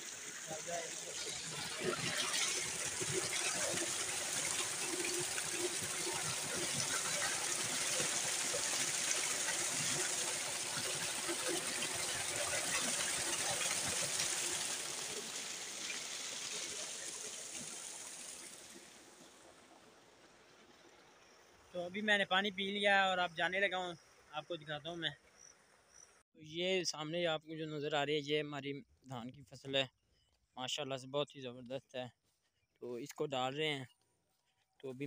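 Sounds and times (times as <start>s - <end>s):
water gushing into a tank: 0.0s - 21.9s.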